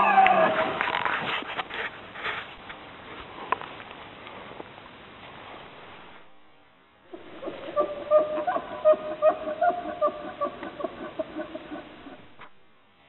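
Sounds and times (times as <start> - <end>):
elk bugling: 7.1 - 12.5.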